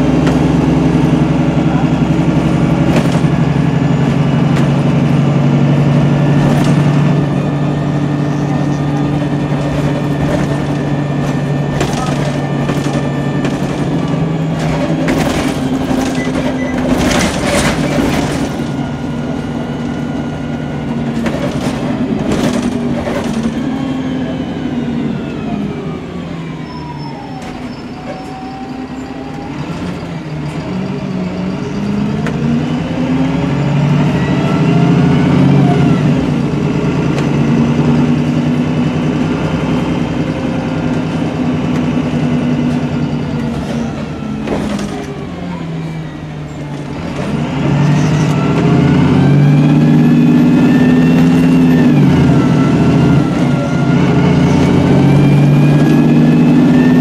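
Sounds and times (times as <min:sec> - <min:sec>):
bus diesel engine: 0:00.0 - 0:57.0
bus body rattling knocks: 0:09.0 - 0:18.8.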